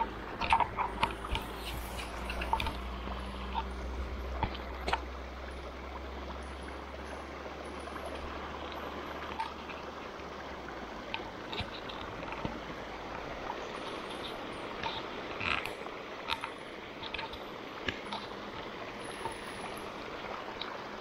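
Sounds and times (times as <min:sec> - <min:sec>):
stream trickling over rocks: 0:00.0 - 0:21.0.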